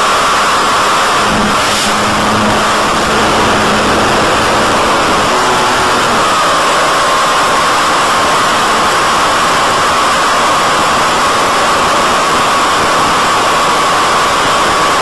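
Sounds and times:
video link static hiss: 0.0 - 9.8
electric motor and propeller whine: 0.0 - 15.0
wind rush: 0.5 - 8.0.

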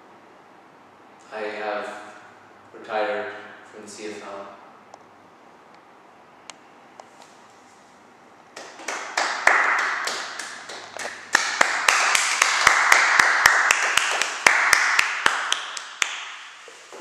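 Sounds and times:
audience applauding: 8.6 - 16.3.

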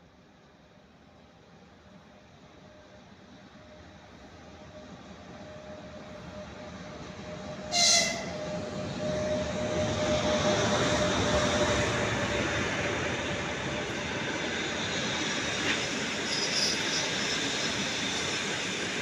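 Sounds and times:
train wheels on rails: 3.2 - 19.0
locomotive horn toot: 7.7 - 8.5.

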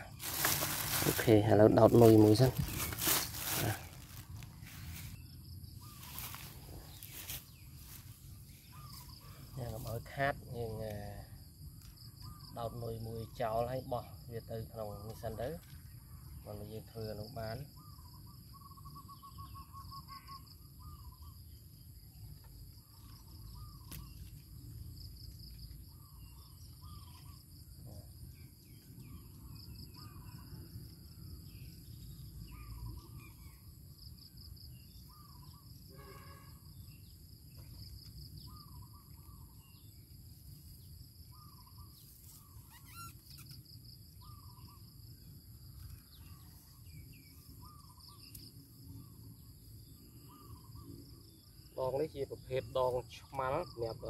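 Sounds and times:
bird calling with trill: 0.0 - 10.9, 12.0 - 13.6, 15.3 - 22.2, 22.8 - 24.4, 25.9 - 33.7, 34.3 - 40.1, 41.2 - 54.0
insects chirping: 0.0 - 54.0.

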